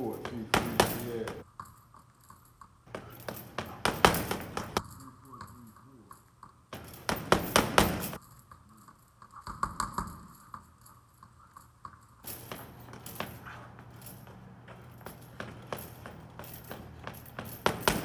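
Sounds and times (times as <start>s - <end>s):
gloves punching heavy bag: 0.0s - 1.4s, 2.9s - 4.8s, 6.8s - 8.2s, 12.3s - 18.0s.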